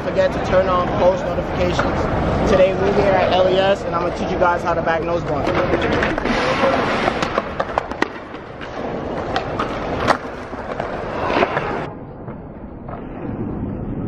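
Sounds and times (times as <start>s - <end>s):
skateboard wheels rolling on concrete: 0.0s - 14.0s
skateboard clacks: 4.9s - 13.2s.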